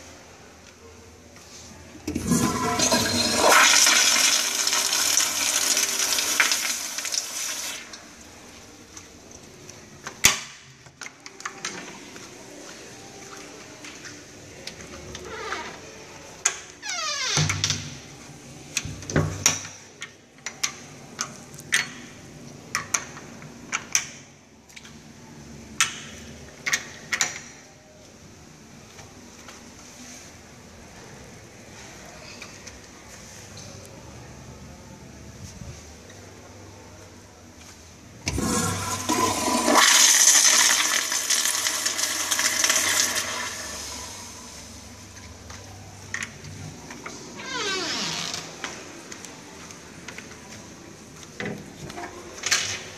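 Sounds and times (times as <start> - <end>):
toilet bowl refilling: 2.1 - 8.0, 38.3 - 44.3
toilet flushing: 2.1 - 8.0, 38.3 - 44.6.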